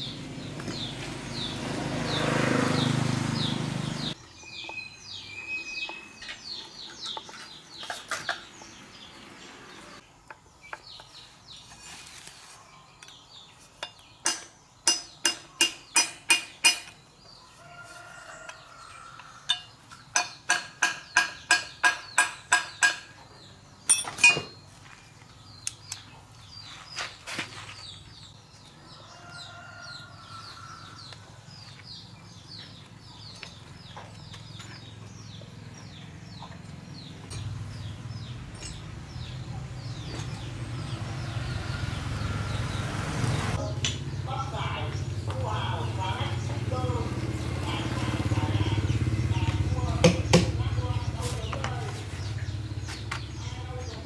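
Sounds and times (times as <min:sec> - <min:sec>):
hammer striking metal: 0:14.2 - 0:17.0, 0:19.5 - 0:23.2, 0:23.9 - 0:24.6.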